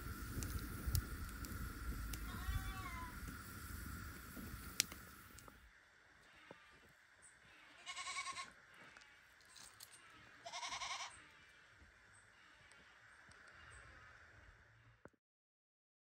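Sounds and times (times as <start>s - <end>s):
wavering animal calls: 9.9s - 14.3s.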